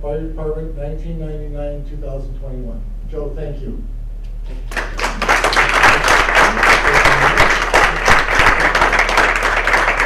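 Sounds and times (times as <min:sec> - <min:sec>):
audience applauding: 0:04.7 - 0:10.0.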